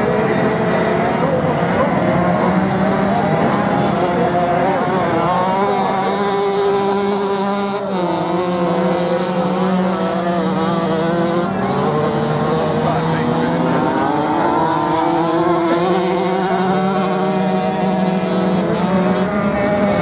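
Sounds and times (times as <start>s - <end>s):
motorcycle engines revving: 0.0s - 20.0s.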